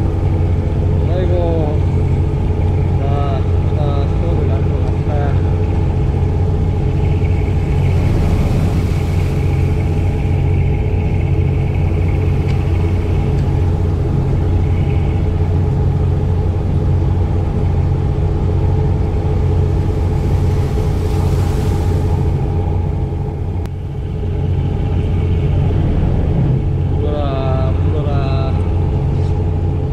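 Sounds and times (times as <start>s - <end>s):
boat engine droning: 0.0s - 29.9s
hiss: 19.8s - 22.4s.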